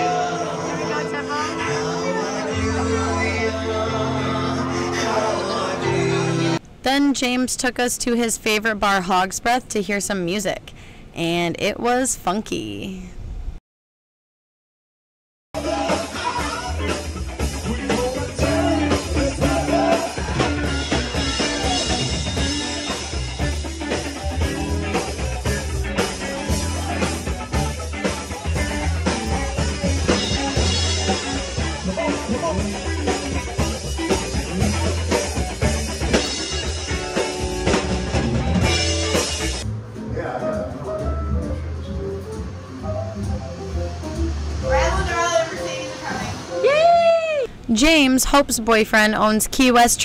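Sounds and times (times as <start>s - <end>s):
bass guitar: 0.0s - 6.6s, 15.6s - 47.5s
person singing: 0.0s - 6.6s, 15.6s - 22.2s
drum kit: 15.6s - 46.8s
electric guitar: 15.6s - 47.7s.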